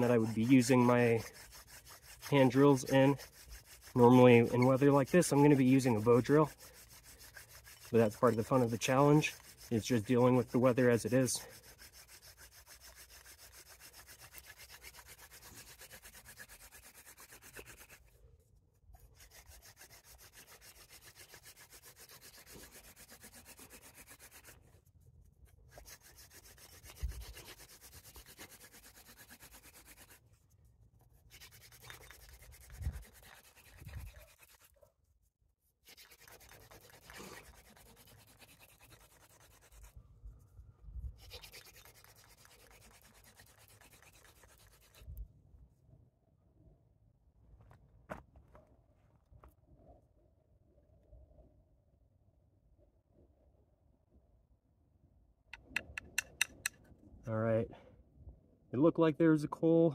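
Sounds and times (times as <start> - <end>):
wooden spindle grinding: 0.0 - 18.1, 19.2 - 24.6, 25.7 - 30.2, 31.3 - 34.8, 35.9 - 40.0.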